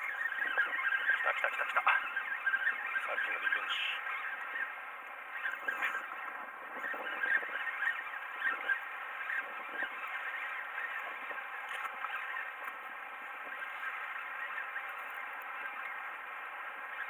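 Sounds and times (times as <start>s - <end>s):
fishing reel scraping whine: 0.0s - 16.2s
fishing reel squeaks: 6.7s - 12.6s.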